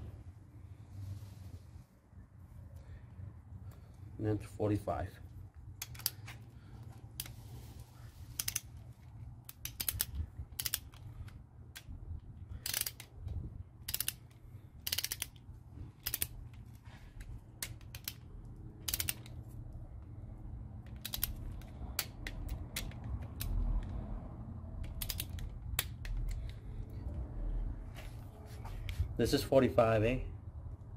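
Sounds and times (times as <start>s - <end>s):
steady low hum: 0.0s - 30.9s
ratchet wrench clicking: 5.8s - 6.3s, 8.3s - 8.8s, 9.4s - 11.9s, 12.5s - 13.2s, 13.8s - 15.4s, 16.0s - 16.5s, 17.6s - 19.4s, 20.9s - 23.9s, 24.8s - 26.5s.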